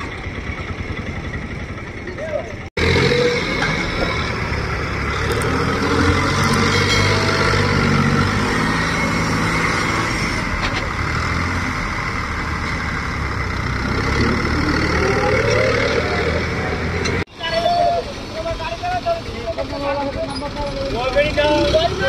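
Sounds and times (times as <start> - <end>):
tractor diesel engine under load: 0.0 - 17.3.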